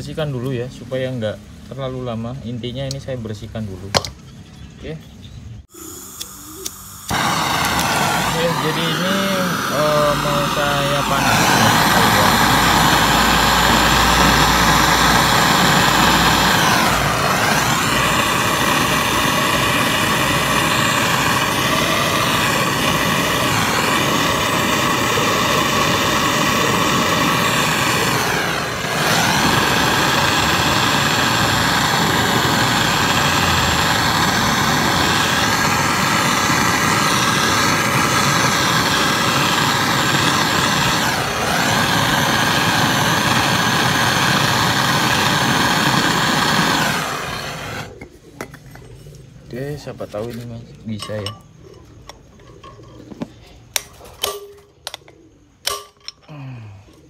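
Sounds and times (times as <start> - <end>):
gas torch hissing: 5.6 - 48.9.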